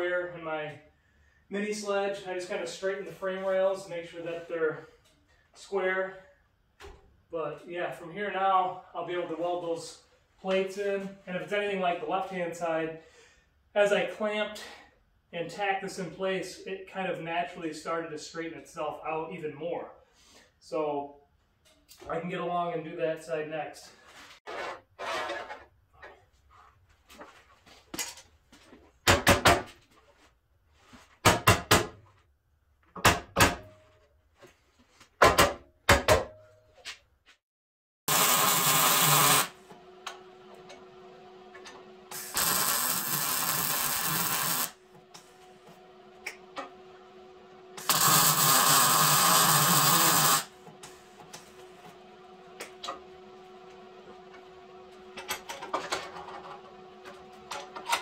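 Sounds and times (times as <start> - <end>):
welding: 38.1 - 39.6, 42.1 - 44.8, 47.8 - 50.5.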